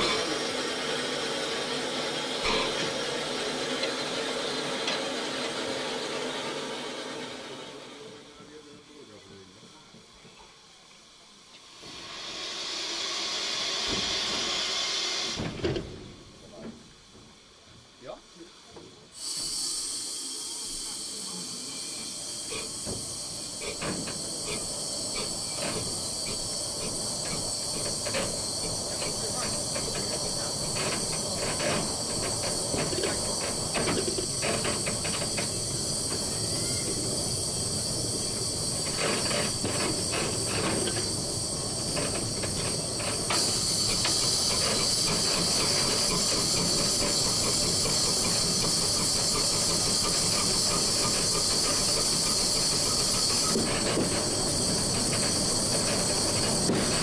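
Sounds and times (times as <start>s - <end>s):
steam hissing: 0.0s - 57.0s
locomotive engine clicks and rattles: 23.6s - 36.4s, 38.6s - 57.0s.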